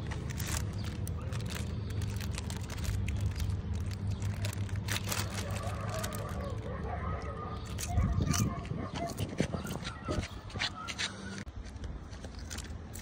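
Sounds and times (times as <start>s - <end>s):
foil packet crinkling: 0.0s - 6.8s.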